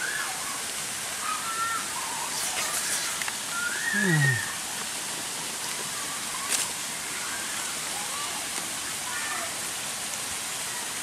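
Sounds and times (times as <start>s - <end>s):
forest hiss: 0.0s - 11.0s
low sliding vocal sound: 2.2s - 4.5s.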